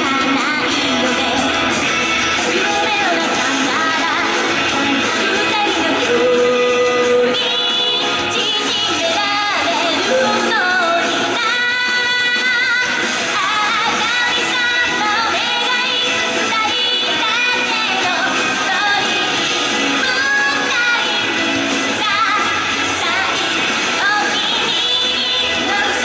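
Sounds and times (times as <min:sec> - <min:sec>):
instrumental accompaniment: 0:00.0 - 0:11.6
young woman singing pop song: 0:00.0 - 0:26.0.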